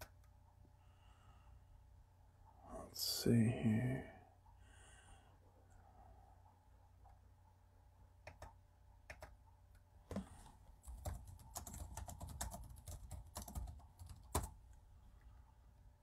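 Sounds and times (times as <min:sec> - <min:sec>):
typing on computer keyboard: 0:08.3 - 0:09.4, 0:10.8 - 0:14.6.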